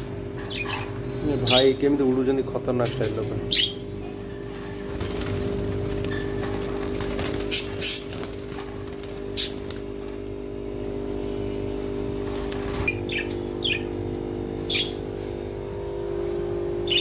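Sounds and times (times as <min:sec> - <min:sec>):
steady low hum: 0:00.0 - 0:17.0
budgerigars chirping and squawking: 0:00.4 - 0:02.0, 0:02.9 - 0:03.8, 0:07.3 - 0:08.3, 0:12.7 - 0:14.0, 0:14.6 - 0:15.0.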